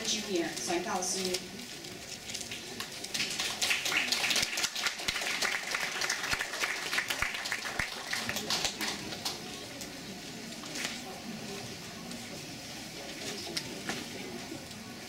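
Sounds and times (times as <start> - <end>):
audience applauding: 2.4 - 9.5.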